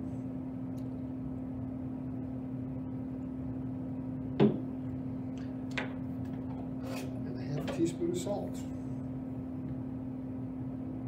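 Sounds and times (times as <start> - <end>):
steady low hum: 0.0 - 11.0
bottle knocking on table: 4.4 - 4.6.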